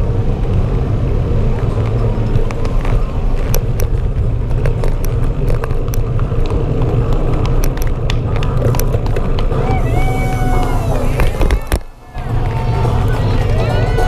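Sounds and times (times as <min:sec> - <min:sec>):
bicycle rolling over asphalt: 0:00.0 - 0:14.0
bike clicks and rattles: 0:01.5 - 0:09.7.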